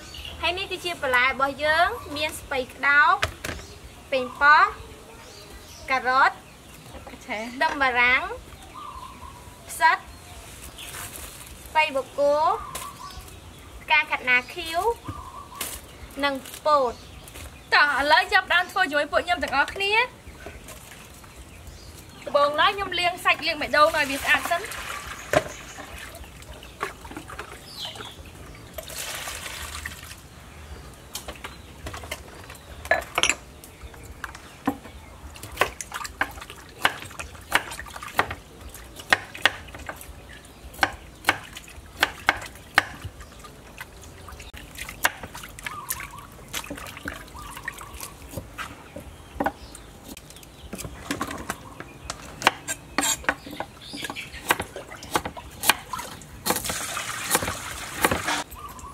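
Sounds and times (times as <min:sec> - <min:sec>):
water sloshing and trickling: 0:14.4 - 0:52.3, 0:53.2 - 0:58.9
knife chopping on wooden board: 0:54.4 - 0:56.7.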